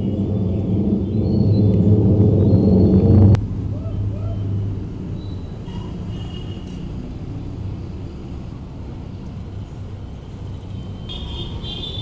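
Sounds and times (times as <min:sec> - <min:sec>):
low outdoor rumble: 0:00.0 - 0:05.2.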